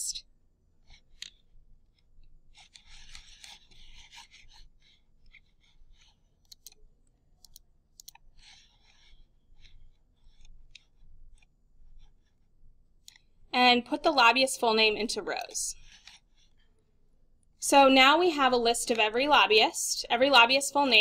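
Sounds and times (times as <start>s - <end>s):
computer mouse clicking: 0.9s - 1.4s, 5.2s - 12.1s, 13.0s - 13.3s
soft rubbing noise: 2.4s - 6.4s.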